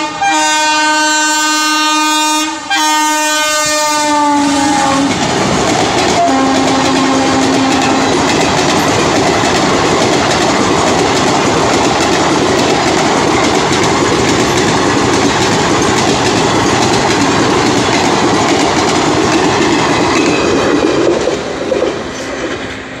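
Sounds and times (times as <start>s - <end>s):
train wheels clattering over rail joints: 4.8s - 23.0s.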